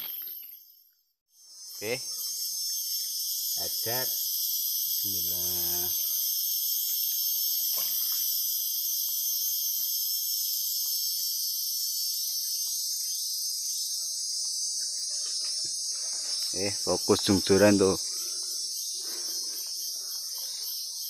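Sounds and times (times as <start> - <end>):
high-pitched insect chorus: 0.0 - 21.0.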